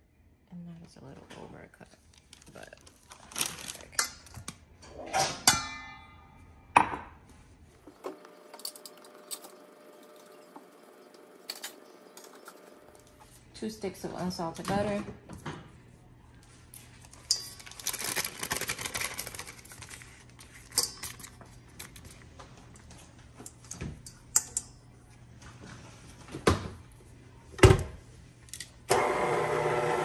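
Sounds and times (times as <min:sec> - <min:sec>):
paper rustling: 0:17.0 - 0:22.0.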